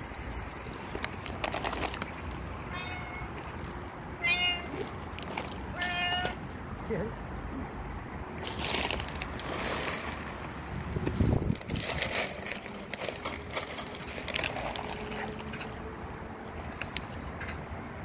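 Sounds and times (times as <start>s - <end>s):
plastic bag rustling: 0.8s - 2.5s, 4.6s - 5.8s, 8.4s - 15.8s
kibble spilling onto concrete: 8.4s - 15.7s.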